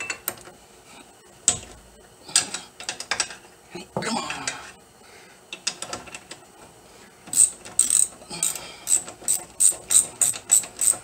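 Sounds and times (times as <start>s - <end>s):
ratchet clicking: 7.3s - 11.0s.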